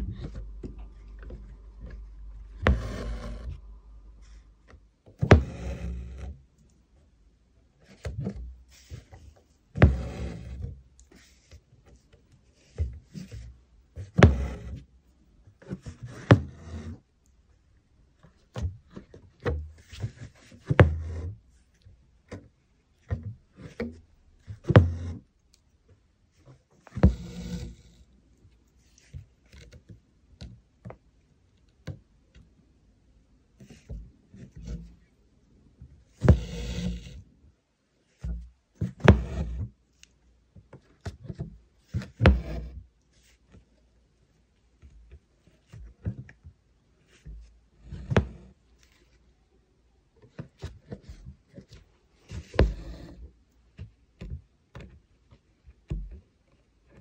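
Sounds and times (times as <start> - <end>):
thread rasping through fabric: 0.0 - 4.4, 26.9 - 28.0, 36.2 - 37.2.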